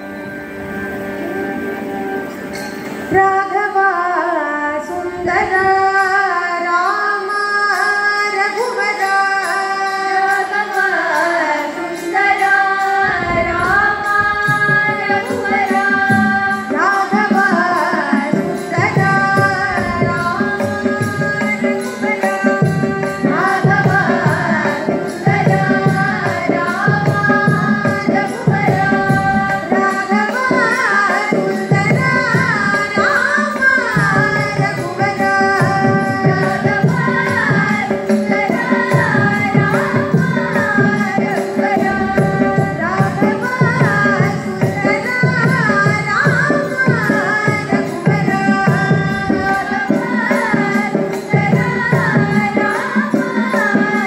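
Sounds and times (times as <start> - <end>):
woman singing devotional song: 1.2 - 54.0
hand-drum strokes: 8.4 - 54.0
steady drone: 12.8 - 16.7.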